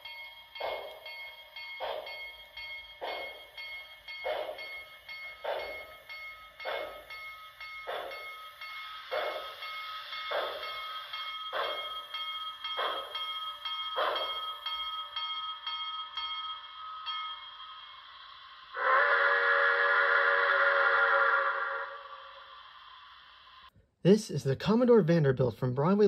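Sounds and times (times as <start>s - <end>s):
steady high whine: 0.0s - 20.4s
model train steam chuffs: 3.0s - 14.5s, 17.4s - 23.7s.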